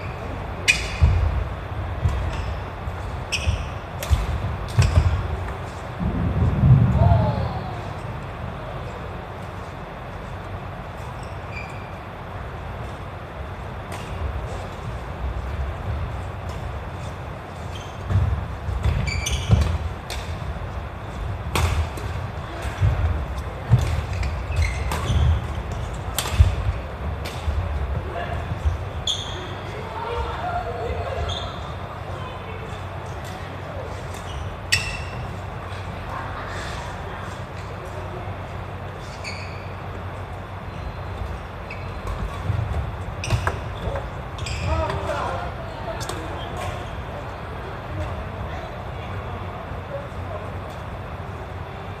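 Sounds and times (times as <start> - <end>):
shoe squeak: 0.0 - 1.3, 2.2 - 5.4, 11.0 - 12.1, 17.0 - 20.0, 23.9 - 26.0, 28.6 - 29.9, 31.1 - 32.0, 34.1 - 35.4, 39.0 - 45.1
low rumble of sports hall: 0.0 - 52.0
racket hitting shuttlecock: 3.4 - 5.8, 18.8 - 20.5, 21.5 - 23.0, 23.7 - 27.6
racket striking shuttlecock: 21.5 - 22.7, 24.9 - 27.5.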